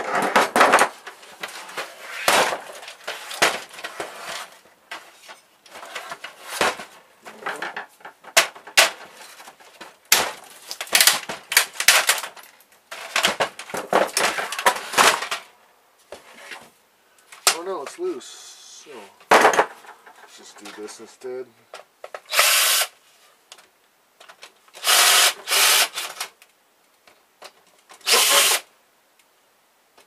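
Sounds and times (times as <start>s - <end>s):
plastic parts clicking and rattling: 0.0s - 15.5s, 23.5s - 28.6s.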